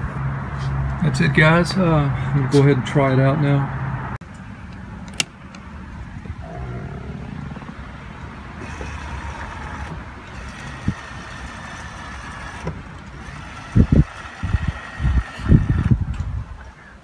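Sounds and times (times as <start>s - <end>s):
mirror motor whirring: 8.6s - 16.1s.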